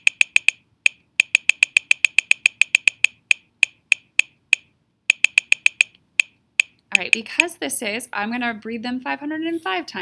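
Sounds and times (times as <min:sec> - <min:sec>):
computer mouse clicking: 0:00.0 - 0:07.5.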